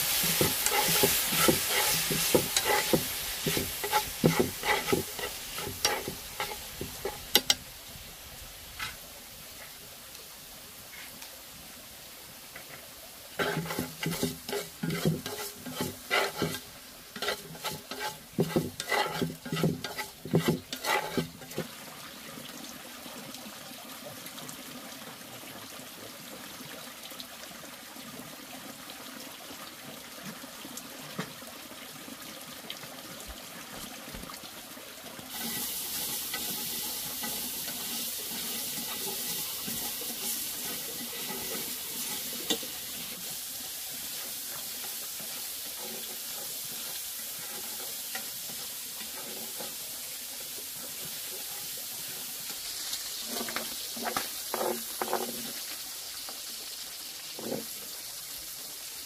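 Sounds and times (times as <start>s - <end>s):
pots and utensils clattering: 0.0s - 7.6s, 13.4s - 21.6s, 35.3s - 42.7s
steady hiss: 0.0s - 21.6s, 35.3s - 59.0s.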